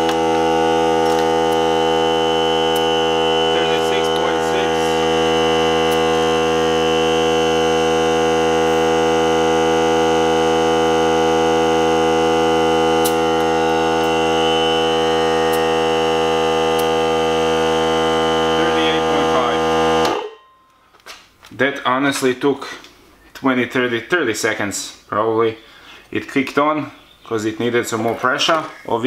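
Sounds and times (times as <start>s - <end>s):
air compressor running: 0.0s - 20.4s.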